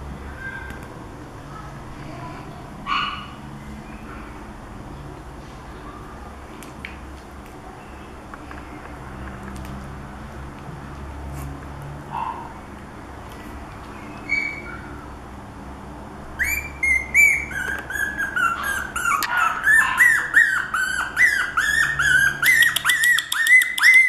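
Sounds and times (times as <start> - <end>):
puppy whining in high squeals: 14.3 - 14.8, 16.4 - 24.0.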